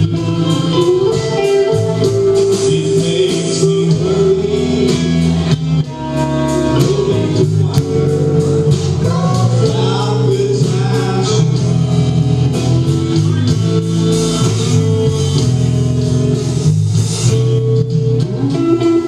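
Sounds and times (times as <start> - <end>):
person singing: 0.0 - 5.4, 6.1 - 11.8
live rock band playing: 0.0 - 19.0.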